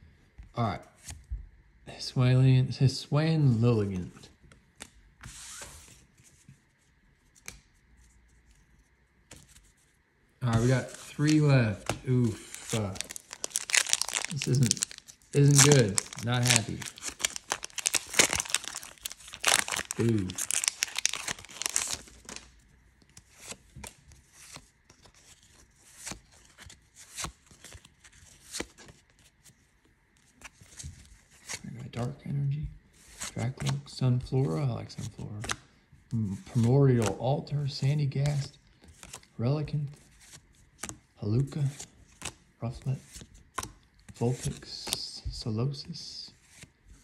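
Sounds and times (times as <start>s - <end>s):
trading cards sliding rustle: 4.8s - 22.5s
trading cards flicking and snapping: 7.2s - 7.8s, 10.5s - 29.0s, 41.8s - 42.4s, 43.1s - 43.8s.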